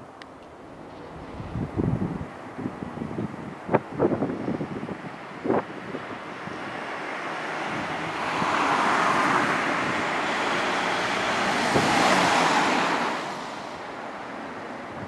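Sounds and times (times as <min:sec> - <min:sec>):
road vehicle passing by: 0:04.5 - 0:15.0.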